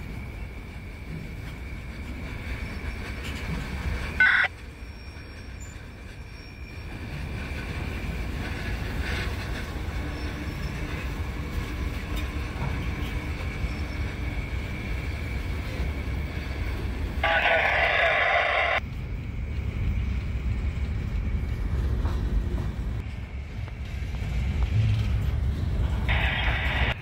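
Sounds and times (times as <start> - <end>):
freight train rumbling past: 0.0 - 27.0.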